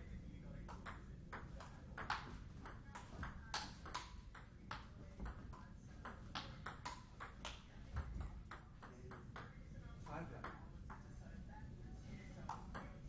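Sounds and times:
table tennis ball clicking: 0:00.7 - 0:09.6.

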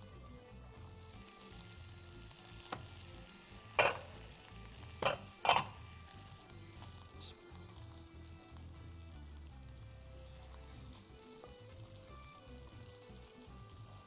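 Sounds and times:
faint steady hiss: 0:00.0 - 0:14.0
pot lids clinking: 0:03.8 - 0:04.2, 0:05.0 - 0:05.8.

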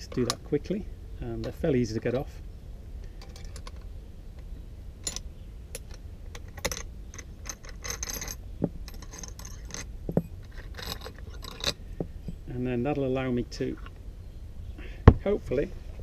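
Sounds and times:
spanner clicking on metal bolts: 0:00.0 - 0:00.5, 0:05.0 - 0:11.8
bolt scraping as turned out: 0:05.0 - 0:12.1.

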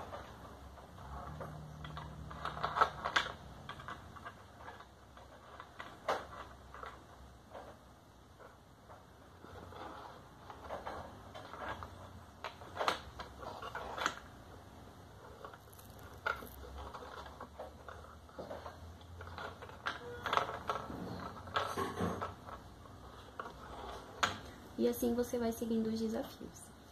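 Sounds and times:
game pieces scraping and clicking: 0:00.0 - 0:25.2.

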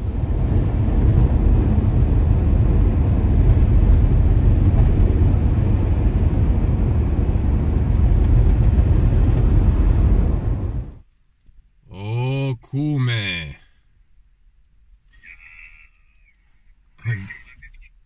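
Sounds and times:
vehicle engine: 0:00.0 - 0:11.0
road noise: 0:00.0 - 0:11.1, 0:15.0 - 0:18.0.

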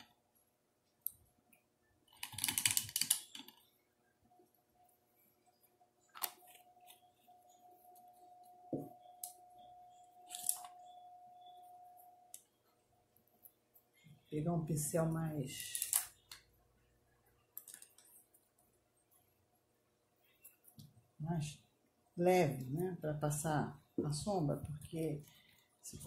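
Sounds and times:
faint steady tone: 0:03.4 - 0:15.6.

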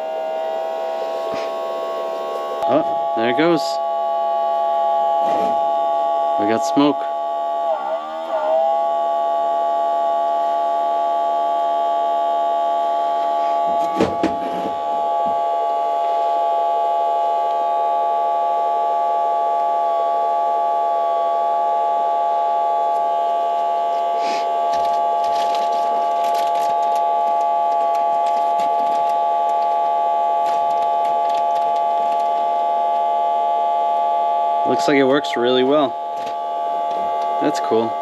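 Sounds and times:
air pump whine: 0:00.0 - 0:38.0
handling clicks and rustling: 0:24.7 - 0:32.5.

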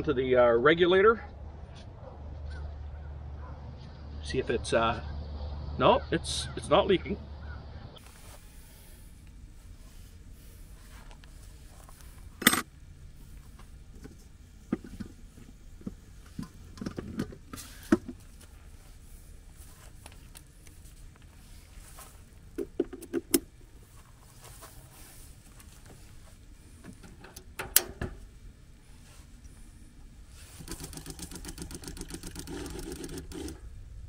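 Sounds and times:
hose fitting clicks and knocks: 0:15.8 - 0:18.2, 0:22.6 - 0:23.5, 0:26.8 - 0:28.2.

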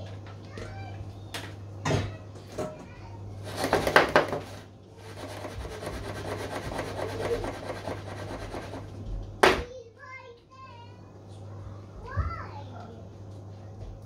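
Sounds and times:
pan scraping rattle against table: 0:03.4 - 0:08.9.

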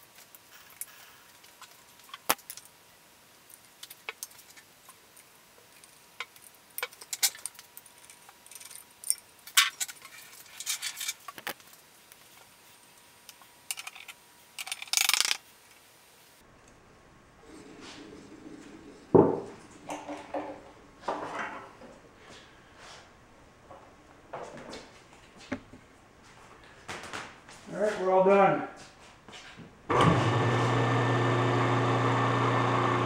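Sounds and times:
metal parts clicking and clinking: 0:05.7 - 0:11.5, 0:13.7 - 0:15.4.

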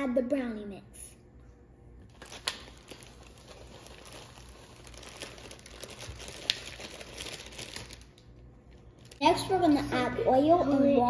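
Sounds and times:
plastic bag crinkling: 0:02.0 - 0:09.8.

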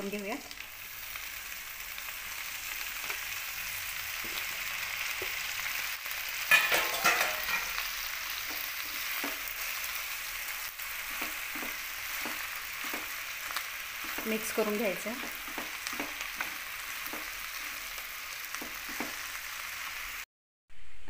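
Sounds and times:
hot oil sizzling: 0:00.0 - 0:20.3
spatula scraping: 0:10.8 - 0:17.7.

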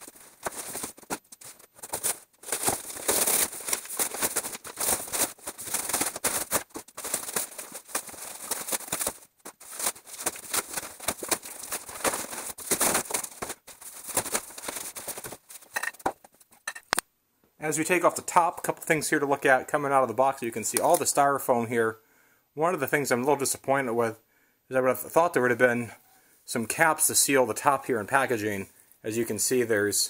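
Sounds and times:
cardboard tearing and crackling: 0:00.0 - 0:16.1.

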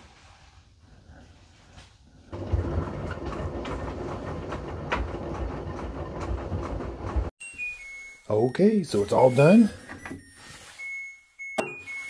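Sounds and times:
washing machine drum tumbling: 0:02.4 - 0:07.3.

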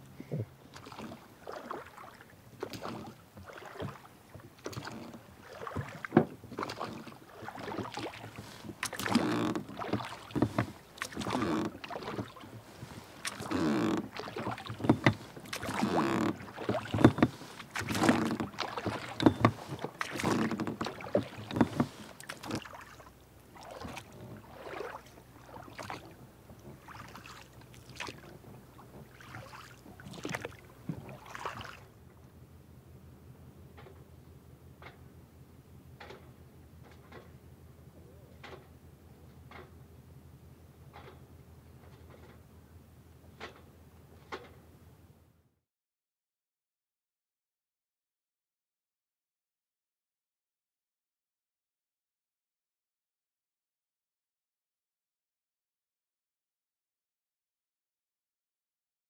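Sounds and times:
paddle splashing through water: 0:00.5 - 0:32.0.

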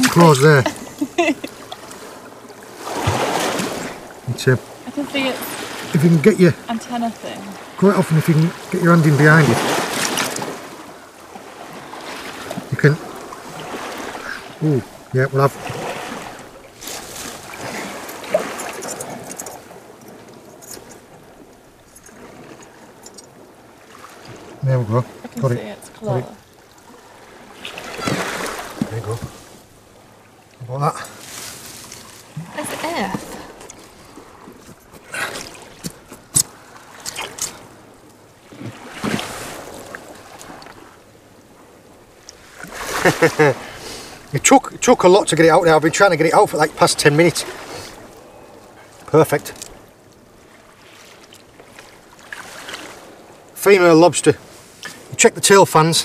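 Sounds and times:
water sloshing and splashing: 0:00.0 - 0:56.0
wet seaweed rustling: 0:31.0 - 0:37.8.

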